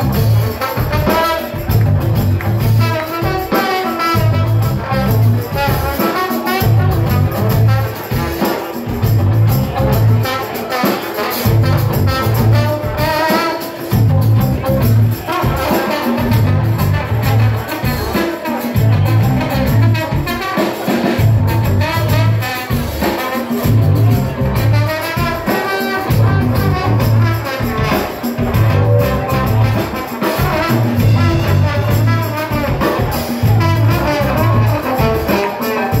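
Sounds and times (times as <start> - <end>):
live band playing: 0.0 - 36.0
saxophone and trumpet horns: 0.0 - 36.0
repeating bass line: 16.4 - 17.5, 26.1 - 27.3, 28.4 - 30.0, 30.7 - 32.3, 33.4 - 35.0.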